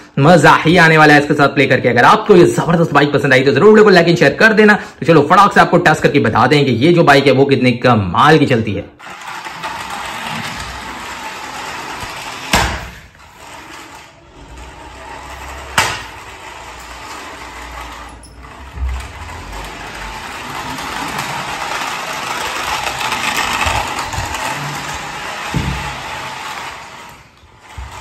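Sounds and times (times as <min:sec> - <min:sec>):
toy car motor whirring: 0:09.0 - 0:28.0.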